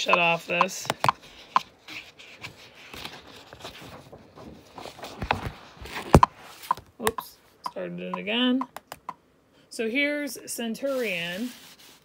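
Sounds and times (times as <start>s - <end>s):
phone handling rubbing and scraping: 0.1s - 3.9s.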